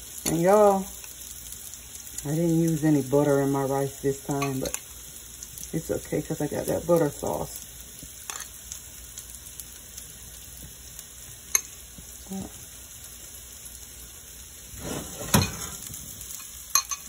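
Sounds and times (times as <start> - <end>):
food sizzling in a pan: 0.0 - 17.0
metal spoon clinking glass bowl: 16.4 - 17.0.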